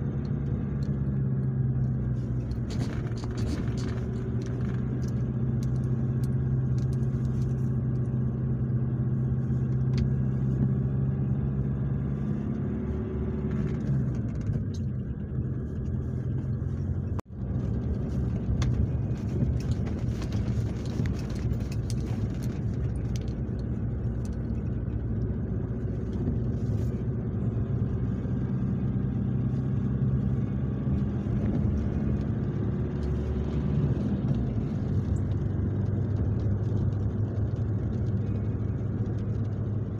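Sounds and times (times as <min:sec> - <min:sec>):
car engine hum: 0:00.0 - 0:39.9
road rumble: 0:00.0 - 0:39.9.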